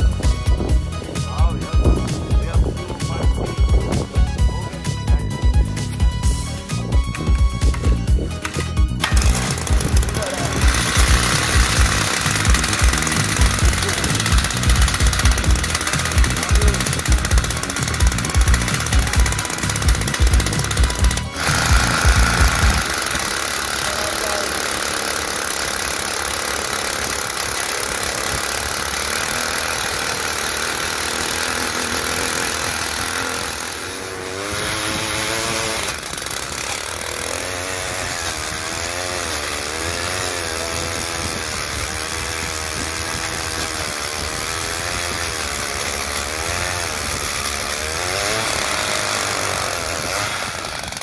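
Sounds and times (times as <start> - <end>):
ice auger engine running: 0.0 - 51.0.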